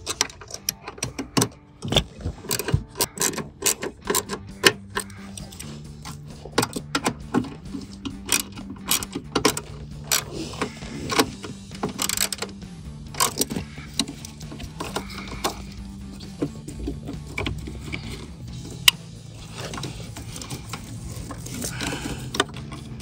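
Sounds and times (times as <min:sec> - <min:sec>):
hand ratchet clicking: 0:00.0 - 0:23.0.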